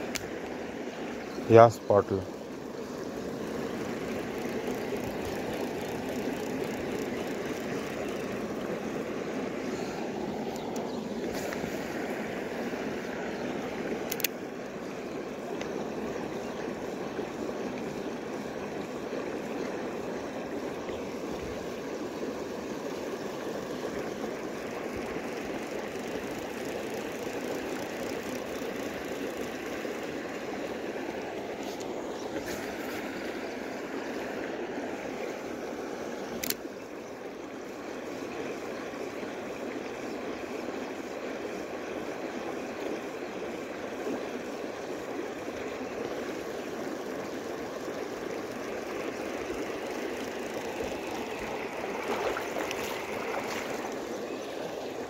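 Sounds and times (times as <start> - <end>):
creek water flowing over rocks: 0.0 - 55.0
sharp click: 14.0 - 14.4, 36.4 - 36.6.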